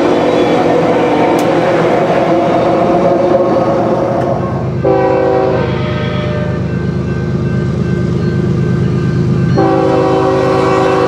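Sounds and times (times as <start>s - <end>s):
diesel locomotive engines rumbling: 0.0s - 11.0s
train horn: 2.2s - 6.8s, 9.6s - 11.0s.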